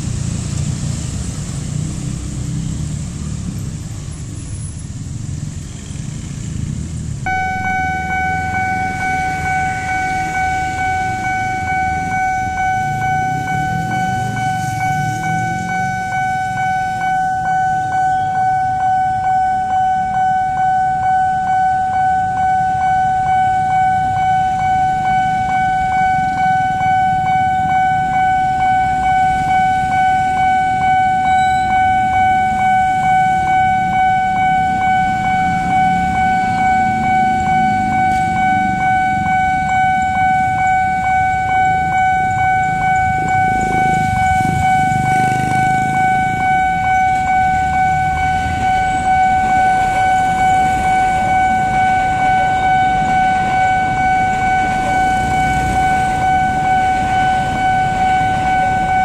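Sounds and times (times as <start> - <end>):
train rumbling past: 0.0 - 18.9, 22.6 - 59.0
waiting traffic: 0.0 - 59.0
level crossing alarm pulsing tone: 7.2 - 59.0.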